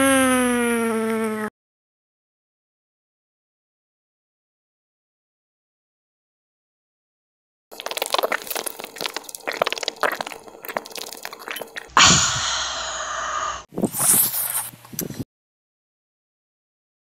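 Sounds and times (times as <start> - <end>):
plastic water bottle crackling: 7.7 - 11.9.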